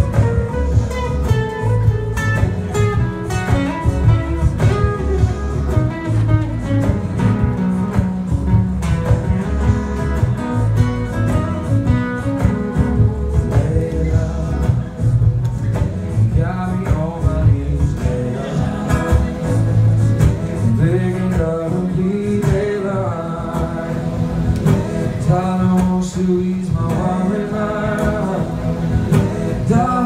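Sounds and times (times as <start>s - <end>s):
amplified acoustic guitar: 0.0s - 30.0s.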